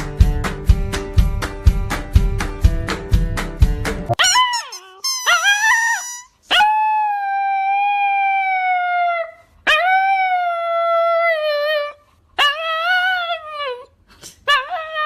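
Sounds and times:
dog howling: 4.2 - 11.3.

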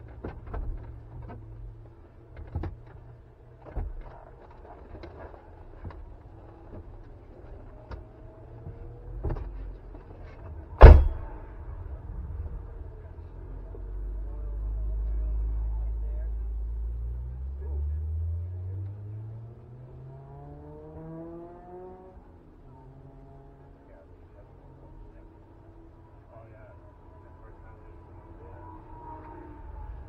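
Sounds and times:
sharp loud bang: 10.8 - 11.6.

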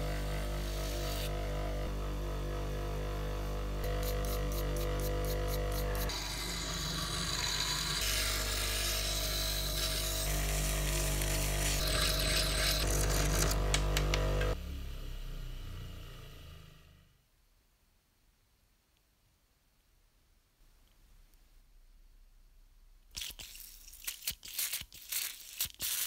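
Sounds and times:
file scraping spinning metal: 3.9 - 13.7.

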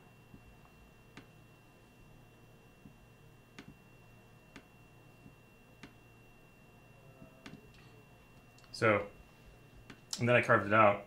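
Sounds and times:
faint high whine: 0.0 - 11.0.

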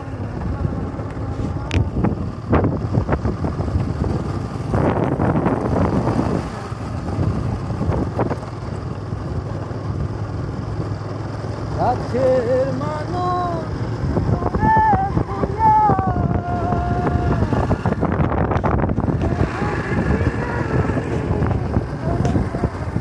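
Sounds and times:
wind buffeting microphone: 0.0 - 8.7, 13.9 - 23.0
motorcycle engine running: 0.0 - 23.0.

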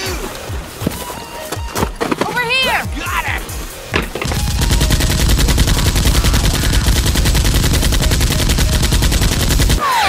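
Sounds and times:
automatic gunfire: 4.2 - 9.8.

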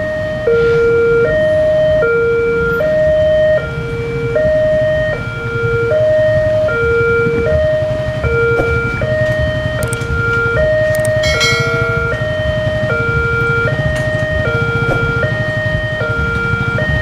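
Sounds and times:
level-crossing alarm two-tone warning: 0.0 - 17.0
motorcycle engines idling: 9.2 - 16.3.

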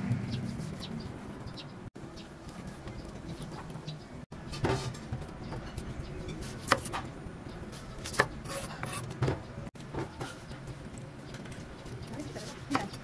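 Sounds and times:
knife cutting on wooden board: 6.4 - 7.0, 8.0 - 9.2.

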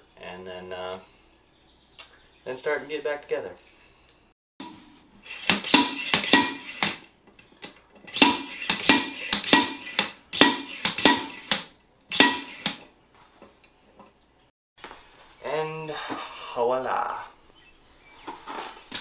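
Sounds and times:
slide hammer clanking metal: 4.6 - 7.0, 8.1 - 12.8.

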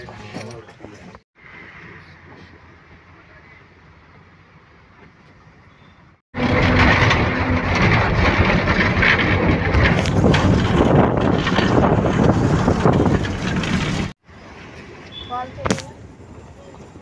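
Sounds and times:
bus engine and road noise: 0.0 - 17.0
wind buffeting microphone: 6.9 - 14.2.

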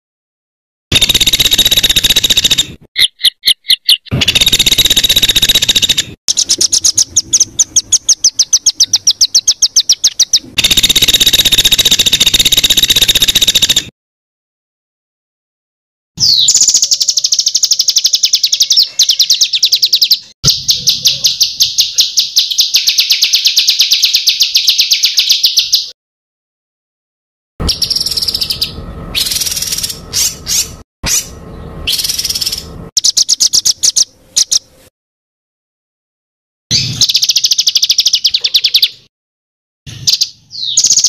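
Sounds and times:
songbird trills: 1.0 - 13.9, 16.2 - 26.0, 27.6 - 34.7, 36.7 - 39.1, 39.9 - 41.0
bird chattering phrases: 16.2 - 25.9, 27.7 - 34.7, 37.2 - 39.0.

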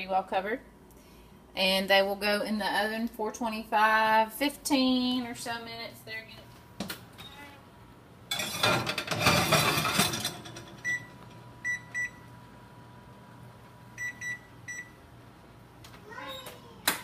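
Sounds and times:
baking sheet scraping and rattling: 8.3 - 10.8
oven control panel beeps: 10.8 - 12.3, 13.9 - 15.0.

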